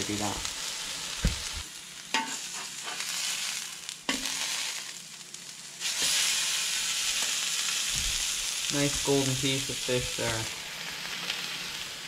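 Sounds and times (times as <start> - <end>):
fish sizzling on griddle: 0.0 - 12.0.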